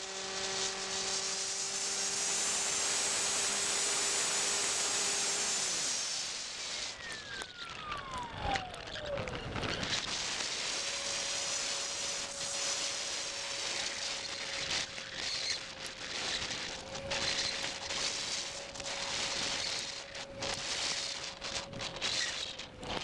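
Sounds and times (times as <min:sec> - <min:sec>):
rushing air hiss: 0:00.0 - 0:07.0
motor whine: 0:00.0 - 0:23.0
rain crackles on microphone: 0:07.0 - 0:10.5, 0:14.3 - 0:23.0.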